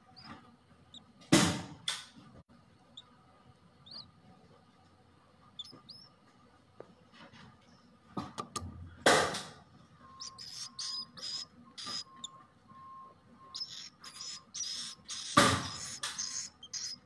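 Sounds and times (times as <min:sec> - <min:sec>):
chicks chirping raspily: 0:00.0 - 0:01.1, 0:03.8 - 0:04.2, 0:05.5 - 0:06.2, 0:10.0 - 0:12.4, 0:13.4 - 0:17.0.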